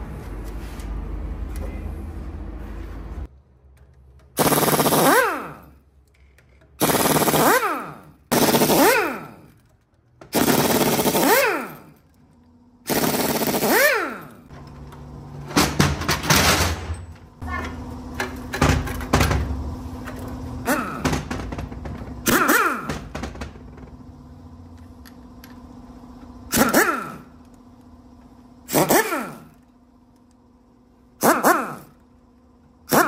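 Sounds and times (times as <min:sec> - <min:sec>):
impact wrench hammering: 0:06.8 - 0:09.6, 0:10.2 - 0:12.0, 0:12.9 - 0:14.4, 0:20.6 - 0:23.7, 0:26.5 - 0:27.3
clattering knocks: 0:21.0 - 0:22.2.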